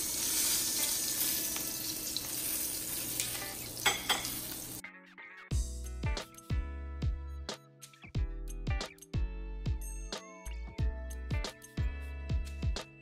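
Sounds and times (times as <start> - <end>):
meat sizzling in frying pan: 0.0 - 4.8
background music with sliding bass: 5.0 - 13.0.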